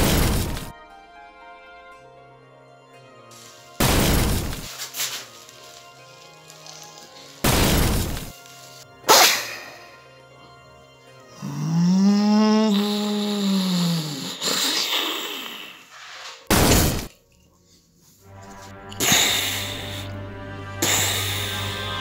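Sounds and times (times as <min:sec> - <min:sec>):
burst of noise: 0:00.0 - 0:00.7, 0:03.8 - 0:04.7, 0:07.4 - 0:08.3
loud blast: 0:00.0 - 0:00.7, 0:03.8 - 0:04.7
sharp crack: 0:00.0 - 0:00.7, 0:03.8 - 0:08.4, 0:09.1 - 0:09.9, 0:16.5 - 0:17.2
background music: 0:00.0 - 0:22.0.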